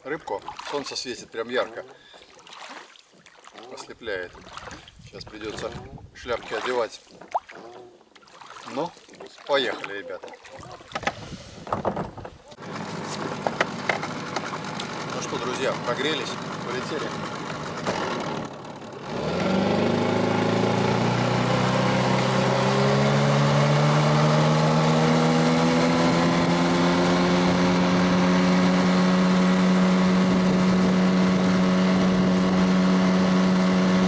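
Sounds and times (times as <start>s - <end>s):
outboard motor running: 12.6s - 34.0s.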